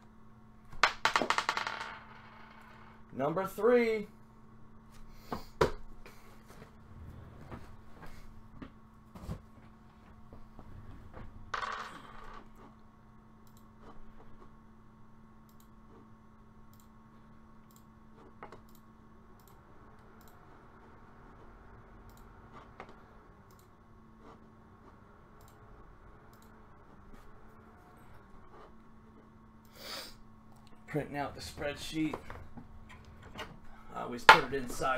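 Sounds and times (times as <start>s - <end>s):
steady low hum: 0.0s - 34.9s
small clicks: 16.7s - 17.0s, 17.6s - 20.4s, 23.4s - 23.7s, 26.3s - 26.6s.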